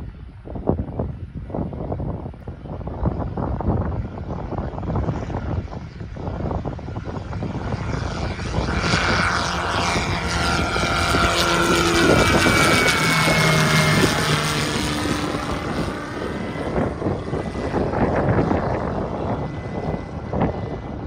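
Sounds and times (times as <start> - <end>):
light aircraft flying past: 0.0 - 21.0.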